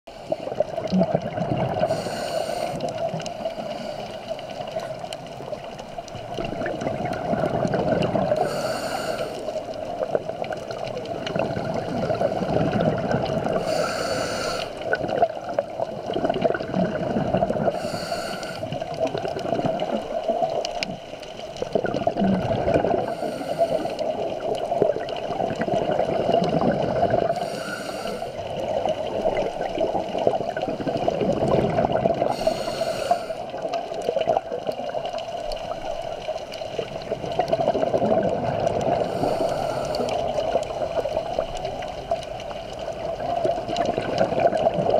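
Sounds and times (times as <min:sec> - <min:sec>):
bubbling exhalations: 0:00.2 - 0:04.0, 0:06.2 - 0:44.9
regulator hissing inhalation: 0:01.9 - 0:04.6, 0:08.4 - 0:09.6, 0:13.6 - 0:14.9, 0:17.7 - 0:18.8, 0:23.0 - 0:24.2, 0:27.3 - 0:28.5, 0:32.3 - 0:33.6, 0:39.0 - 0:40.5.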